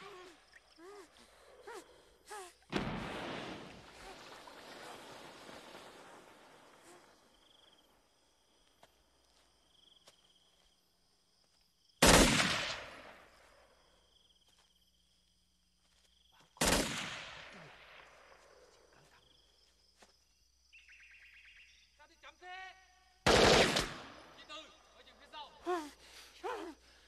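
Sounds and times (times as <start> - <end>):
insects trilling: 0.0 - 12.0, 13.0 - 16.7, 17.4 - 27.0
echoing gunshots: 12.0 - 13.3, 16.6 - 18.3, 23.3 - 24.4.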